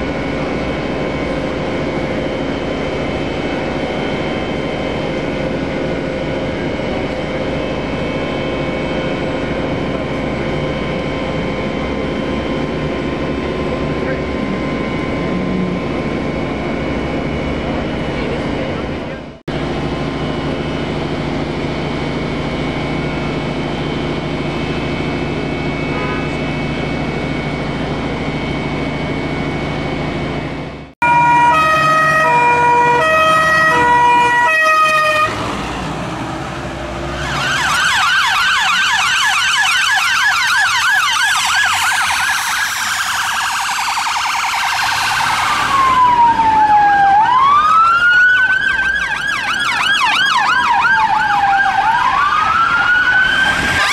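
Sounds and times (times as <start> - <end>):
low engine hum: 0.0 - 31.0, 33.2 - 37.8
emergency vehicle sirens: 0.0 - 53.9.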